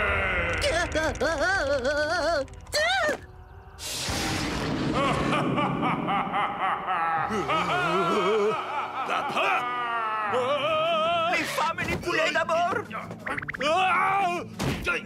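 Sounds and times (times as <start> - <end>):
music: 0.0 - 5.7, 7.2 - 15.0
whoosh-like burst of noise: 3.8 - 5.1
warbling ghostly laugh: 4.8 - 10.6.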